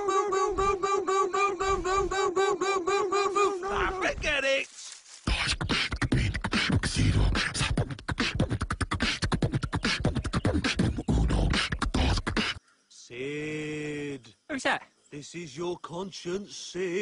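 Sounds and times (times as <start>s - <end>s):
person beatboxing: 5.3s - 12.6s.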